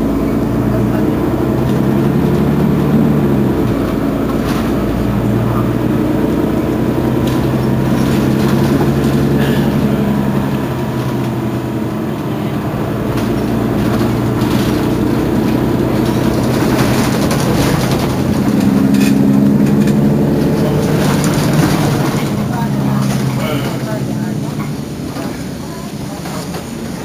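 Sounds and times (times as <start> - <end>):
bus engine idling: 0.0 - 27.0.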